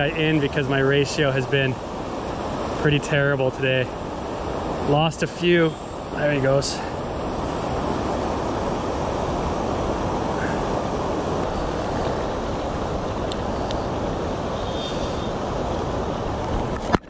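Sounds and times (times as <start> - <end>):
river water rushing over weir: 0.0 - 17.0.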